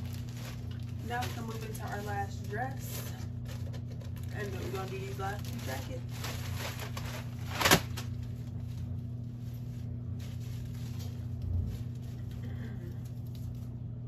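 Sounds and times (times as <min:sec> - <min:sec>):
low hum: 0:00.0 - 0:14.0
clothing rustling: 0:04.4 - 0:12.3.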